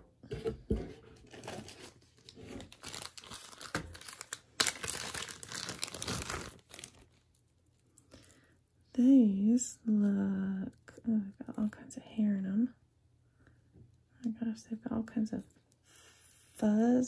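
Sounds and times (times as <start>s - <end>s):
packaging crinkling and tearing: 1.2s - 8.4s.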